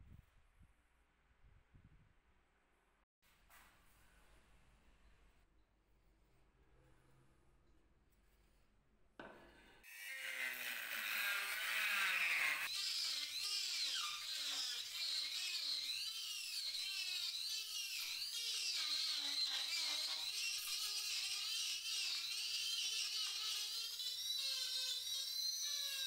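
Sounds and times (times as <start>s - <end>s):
rotary tool grinding wood: 9.9s - 26.0s.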